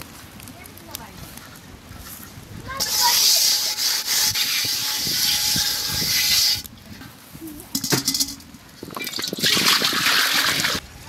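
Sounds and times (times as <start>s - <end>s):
rough scraping and rubbing: 1.4s - 6.7s
water pouring into metal pot: 7.8s - 10.8s.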